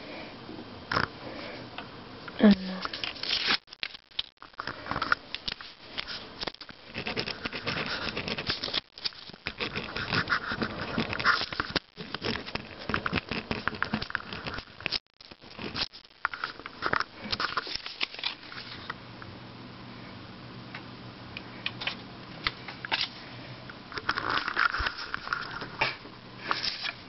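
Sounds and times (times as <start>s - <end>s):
steady low hum: 4.0s - 27.0s
fingers rubbing on camera: 6.0s - 14.9s.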